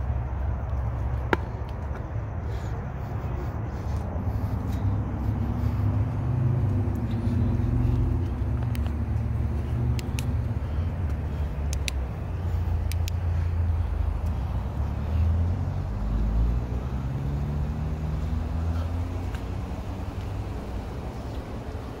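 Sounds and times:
car engine and road rumble: 0.0s - 22.0s
small sharp clicks: 9.9s - 10.4s, 11.6s - 12.1s, 12.8s - 13.2s.

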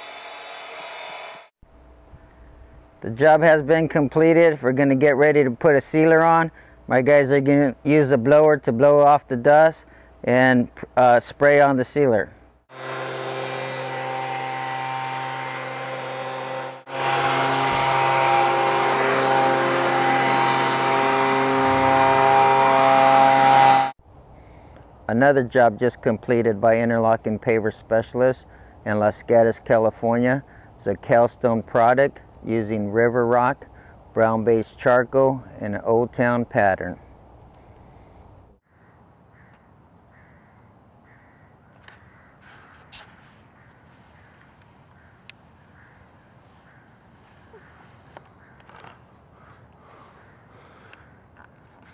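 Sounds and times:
leaf blower running: 12.7s - 24.0s
bird calling: 38.7s - 51.9s.

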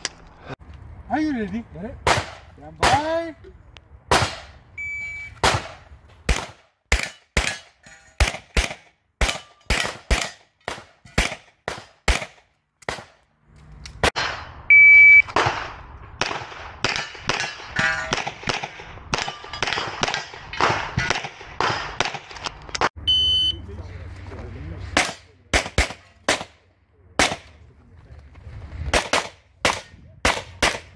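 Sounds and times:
shot timer beep: 4.8s - 5.4s, 14.7s - 15.3s, 23.0s - 23.6s
rapid pistol shots: 8.2s - 13.2s.

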